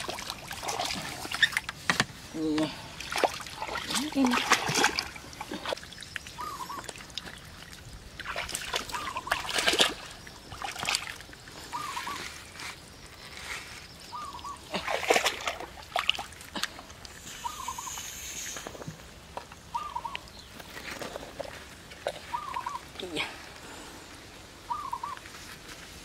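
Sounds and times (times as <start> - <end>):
water splashing: 0.0 - 12.2, 14.1 - 20.1.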